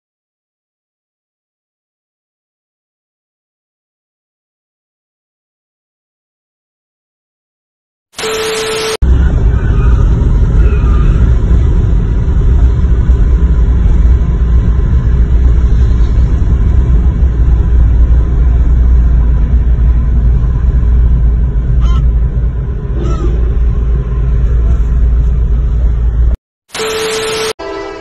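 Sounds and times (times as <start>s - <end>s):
car cabin road rumble: 9.0s - 26.4s.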